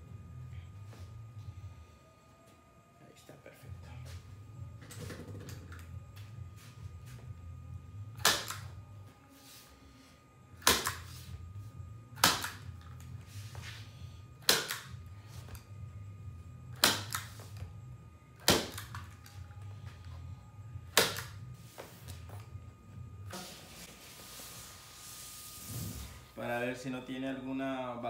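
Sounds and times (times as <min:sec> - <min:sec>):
steady low hum: 0:00.0 - 0:28.0
point driver firing sharp snaps: 0:08.2 - 0:08.6, 0:12.2 - 0:12.6, 0:14.4 - 0:14.9, 0:16.8 - 0:17.3.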